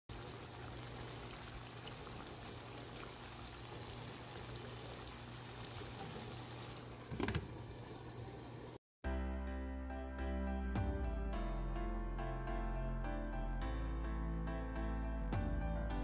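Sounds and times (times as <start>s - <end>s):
gravy sizzling in a pan: 0.1s - 8.8s.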